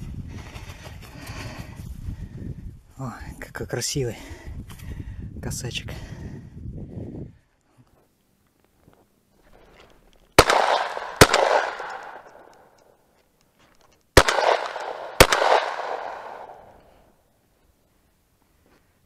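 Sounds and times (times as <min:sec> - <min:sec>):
shotgun shots echoing: 0:10.4 - 0:12.8, 0:14.2 - 0:16.9.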